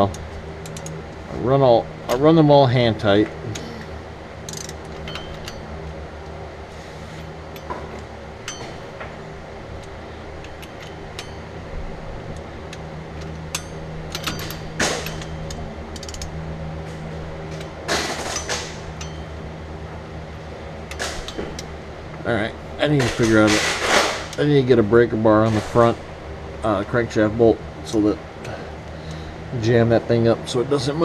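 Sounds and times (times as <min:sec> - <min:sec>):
low hum: 0:00.0 - 0:31.0
metallic clicks of hand tools: 0:04.5 - 0:05.6, 0:12.7 - 0:16.3.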